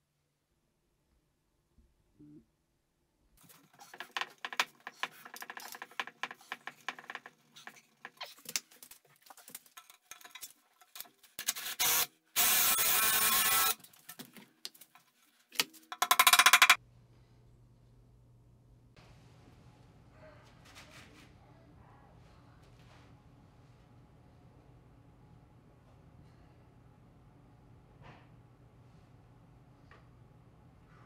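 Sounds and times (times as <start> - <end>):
wooden sticks clicking and knocking: 3.4 - 11.4, 13.8 - 16.8
power drill drilling into wood: 11.5 - 13.8.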